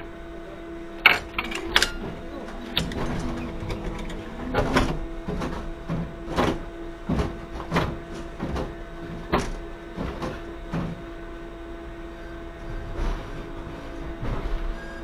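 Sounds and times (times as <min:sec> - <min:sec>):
steady electrical hum: 0:00.0 - 0:14.6
sharp clicks and knocks: 0:01.0 - 0:08.7.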